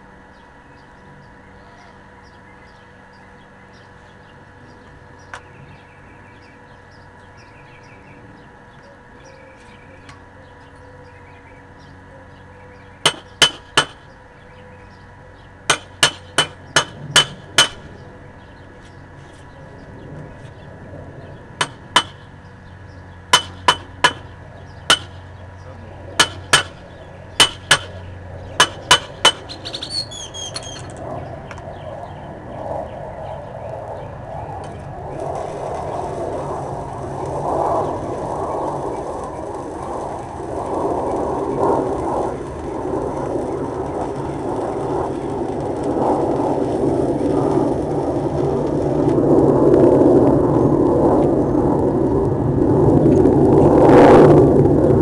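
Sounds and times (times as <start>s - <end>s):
welding arc crackling hiss: 13.0s - 14.2s, 15.6s - 18.0s, 21.5s - 22.5s, 23.2s - 25.3s, 26.2s - 31.0s, 35.1s - 49.5s.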